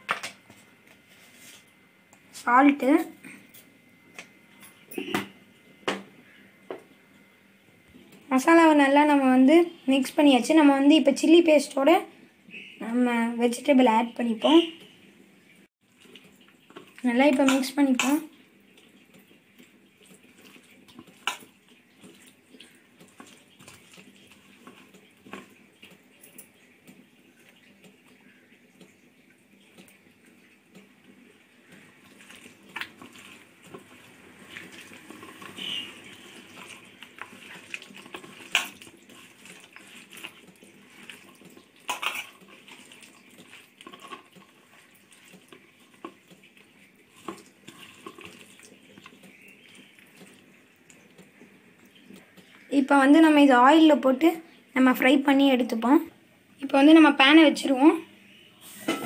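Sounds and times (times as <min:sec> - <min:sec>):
hand squishing food paste: 0:19.6 - 0:26.0, 0:31.7 - 0:52.6.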